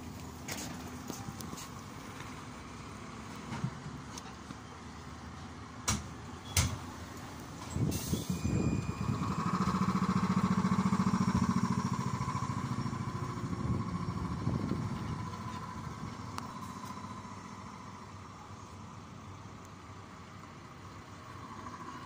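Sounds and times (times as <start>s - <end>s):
air hiss: 7.8s - 8.5s.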